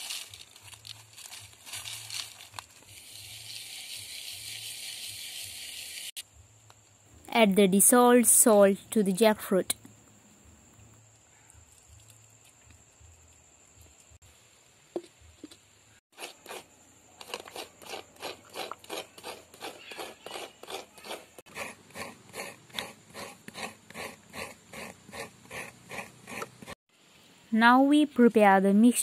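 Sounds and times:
coconut scraping rasps: 0.0 - 6.2, 16.1 - 26.8.

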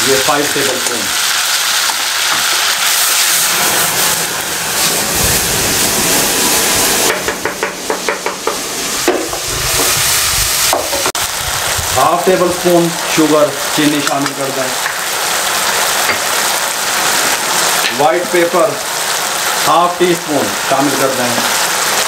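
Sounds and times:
sauce sizzling in hot oil: 0.0 - 22.0
wooden spatula scraping wok: 1.9 - 11.1
low rumble of flaring flame: 2.9 - 7.9, 8.5 - 13.9.

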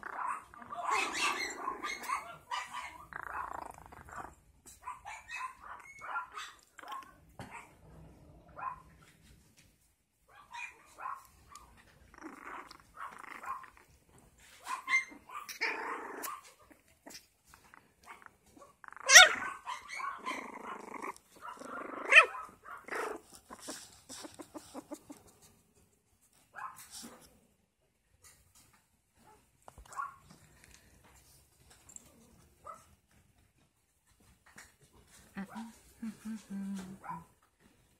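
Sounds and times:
puppies play-growling and yipping: 0.0 - 9.4, 10.4 - 25.6.

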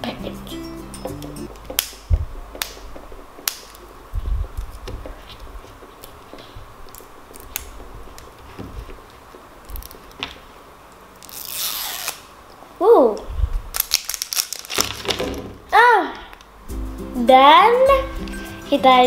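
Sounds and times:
plastic wrapper crinkling: 13.7 - 15.4.

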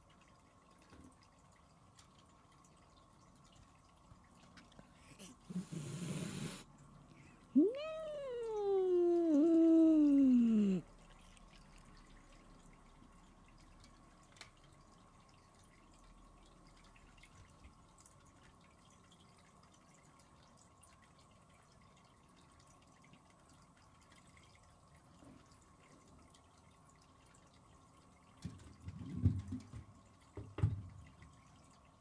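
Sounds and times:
faint high hum: 0.1 - 28.2.

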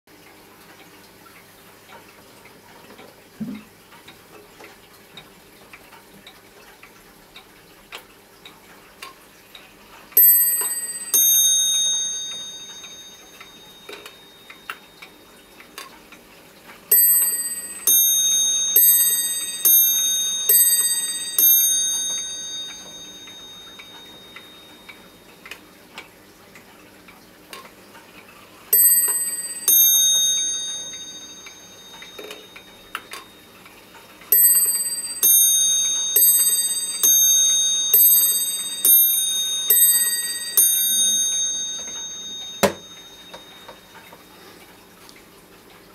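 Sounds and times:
wall clock ticking: 4.0 - 26.1, 28.7 - 44.2
clock chime notes: 10.2 - 15.7, 16.9 - 25.6, 28.7 - 44.6.

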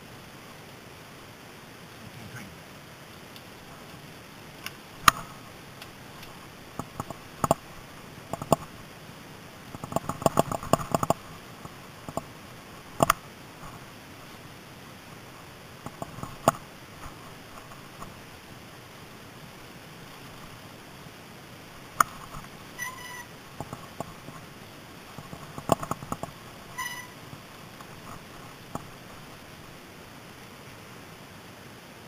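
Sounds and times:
tyres rolling and wind hiss: 0.0 - 32.0
bike clanking and rattling: 9.7 - 11.2, 25.2 - 27.1.

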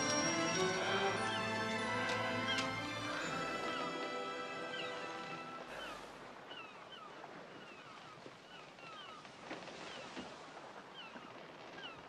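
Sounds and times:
orchestral music: 0.0 - 5.8
birds chirping: 0.0 - 9.2
gentle wash of water: 0.0 - 12.0.

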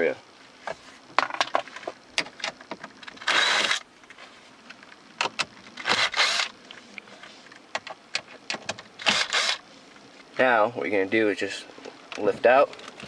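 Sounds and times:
impact driver running: 3.2 - 3.8, 5.8 - 6.5, 9.0 - 9.6.

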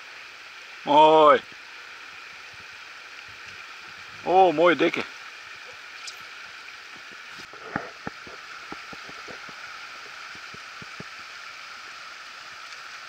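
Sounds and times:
light irregular taps: 7.0 - 11.2.

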